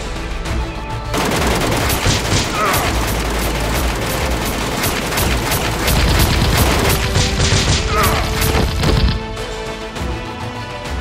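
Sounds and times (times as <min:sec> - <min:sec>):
music: 0:00.0 - 0:11.0
rapid gunfire: 0:01.1 - 0:09.4.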